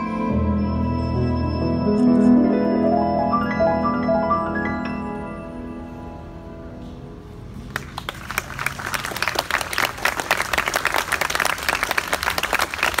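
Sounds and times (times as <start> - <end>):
crowd applauding: 7.6 - 13.0.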